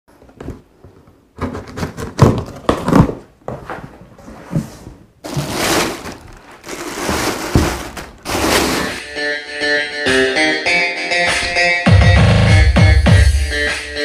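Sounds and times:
plastic bag rustling: 5.2s - 9.0s
cardboard box knocks and scrapes: 7.0s - 8.8s.

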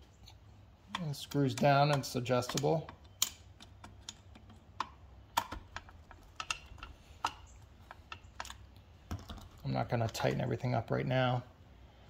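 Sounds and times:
screwdriver clicks and taps: 0.9s - 8.6s.

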